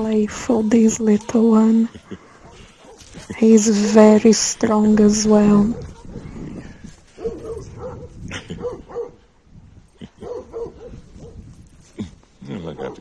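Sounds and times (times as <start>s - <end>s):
young dog vocalizing: 7.2s - 9.2s.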